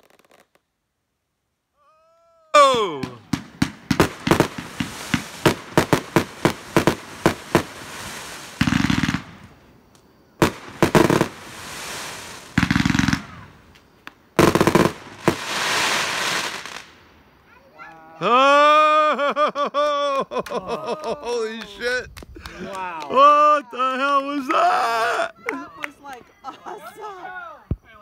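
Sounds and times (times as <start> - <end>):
firework crackle: 0.0 - 0.7, 2.6 - 17.8
firework bangs: 2.6 - 17.3
rapid firework popping: 2.7 - 9.6, 10.4 - 17.0.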